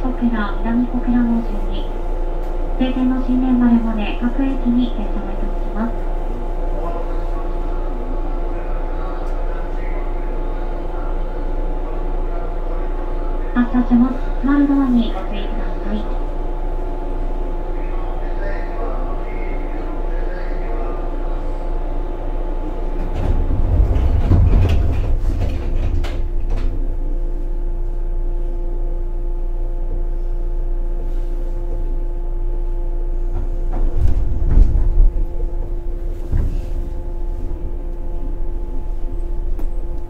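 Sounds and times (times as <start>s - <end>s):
train equipment hum: 0.0s - 40.0s
loud train clunks: 21.8s - 27.7s, 33.2s - 40.0s
train doors closing with thuds: 22.6s - 27.3s, 33.2s - 40.0s.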